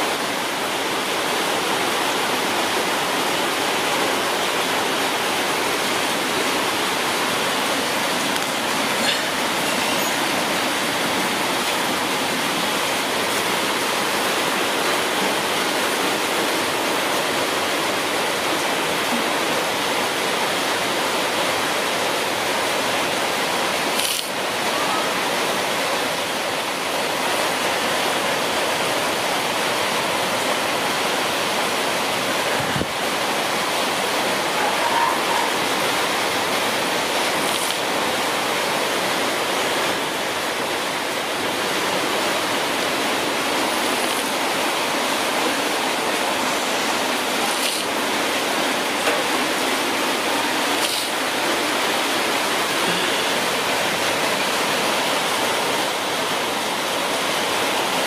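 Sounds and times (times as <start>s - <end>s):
steady rushing hiss: 0.0s - 34.6s, 35.5s - 58.0s.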